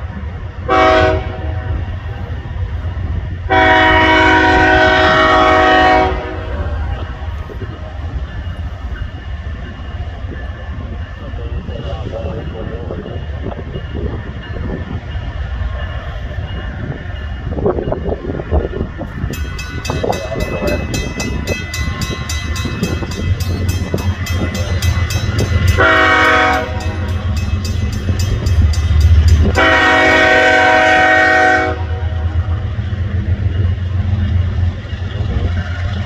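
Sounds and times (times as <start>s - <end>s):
diesel locomotives rumbling: 0.0s - 36.0s
locomotive air horn: 0.7s - 1.7s, 3.5s - 6.5s, 25.7s - 27.1s, 29.4s - 32.0s.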